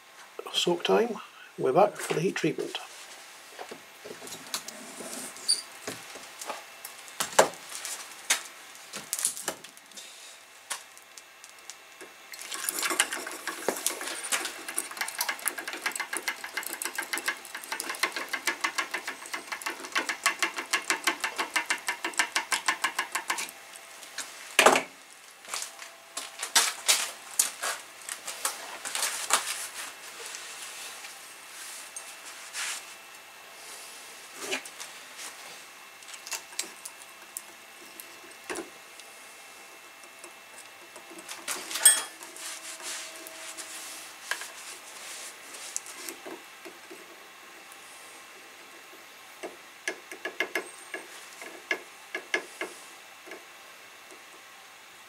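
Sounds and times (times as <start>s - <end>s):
hot metal sizzling in oil: 12.2s - 22.9s
metal clinks and knocks: 41.7s - 42.2s.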